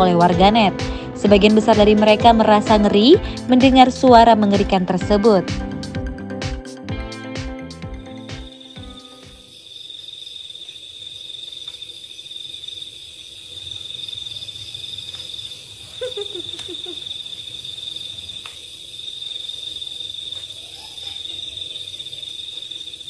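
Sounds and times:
high-pitched insect drone: 8.0 - 23.0
falling laugh-like low notes: 15.9 - 17.2.

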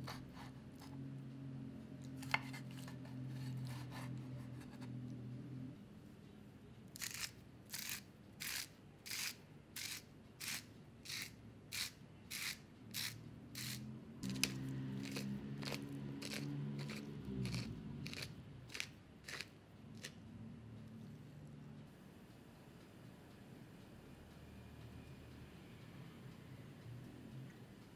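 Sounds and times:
gritty grinding strokes: 7.0 - 20.2.

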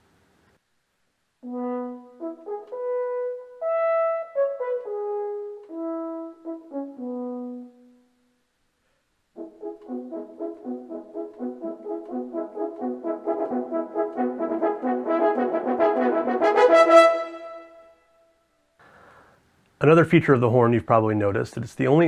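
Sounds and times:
french horn playing: 1.4 - 8.1, 9.4 - 18.3.

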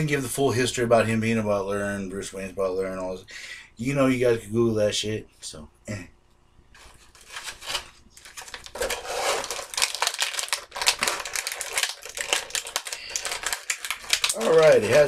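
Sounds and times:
plastic packaging crinkling: 6.8 - 15.0.

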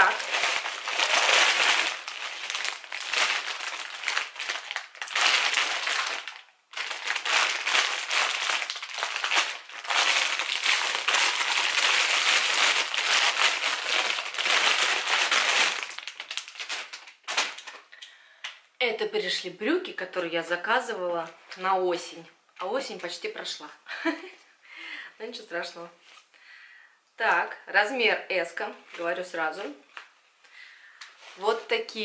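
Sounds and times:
plastic bags crinkling: 0.0 - 18.6.

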